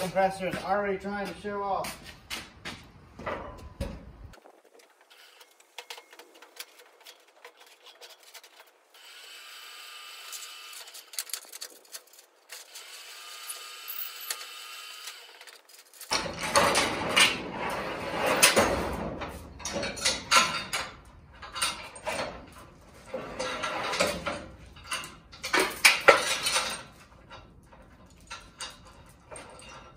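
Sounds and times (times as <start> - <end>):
chain clanking against metal trailer: 15.4 - 29.9.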